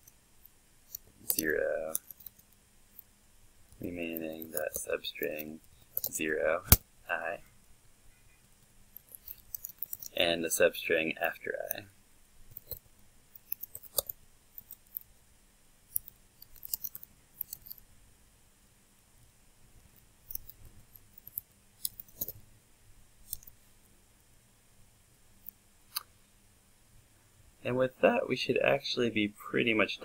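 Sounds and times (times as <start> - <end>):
computer keyboard typing: 4.1 - 6.8, 9.0 - 10.2, 13.4 - 15.0, 16.0 - 17.8.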